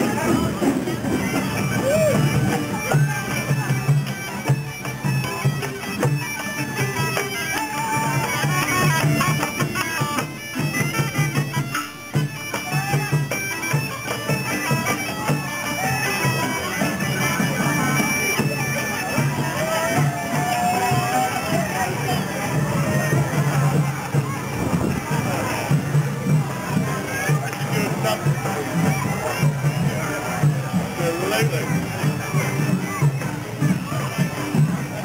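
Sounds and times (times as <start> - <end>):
bagpipes playing a marching tune: 0.0 - 35.0.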